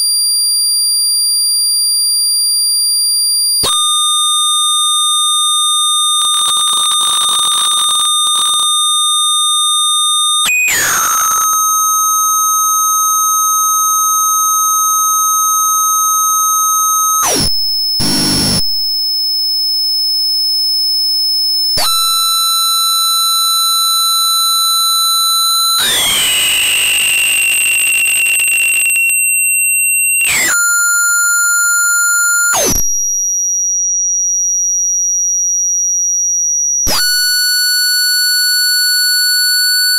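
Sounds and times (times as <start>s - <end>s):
buzzy electronic tones: 6.2s - 8.8s, 10.7s - 11.5s, 17.2s - 18.8s.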